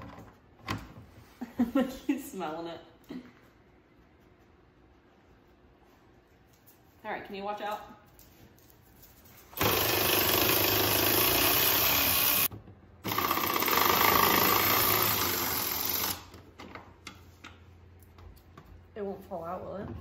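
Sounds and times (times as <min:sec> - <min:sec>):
electric ratchet driving a bolt: 0:09.6 - 0:16.3.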